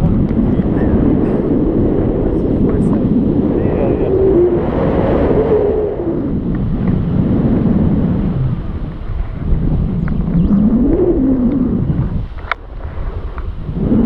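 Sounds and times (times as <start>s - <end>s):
wind buffeting microphone: 0.0s - 14.0s
faint wavering tone: 9.8s - 12.1s.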